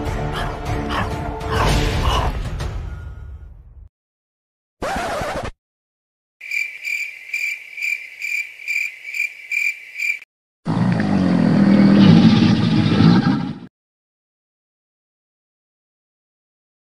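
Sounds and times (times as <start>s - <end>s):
high cricket-like chirping: 6.4s - 10.3s.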